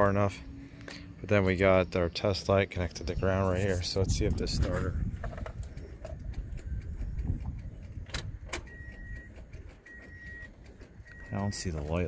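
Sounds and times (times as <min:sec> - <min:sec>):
camera handling rumble: 0:03.5 - 0:08.6
sharp clicks: 0:05.3 - 0:12.0.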